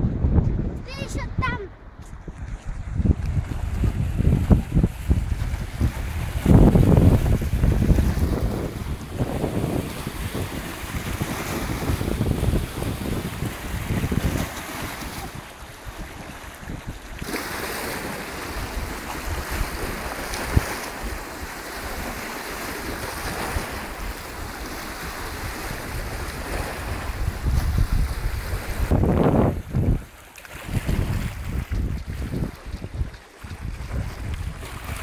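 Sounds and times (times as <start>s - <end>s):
wind buffeting microphone: 0.0s - 35.0s
waves lapping against rocks: 0.9s - 35.0s.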